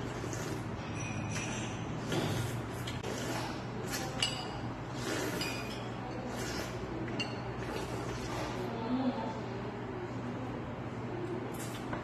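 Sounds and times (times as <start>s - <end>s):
utensils clinking against bowl: 0.1s - 8.4s
person sipping broth: 2.0s - 8.7s.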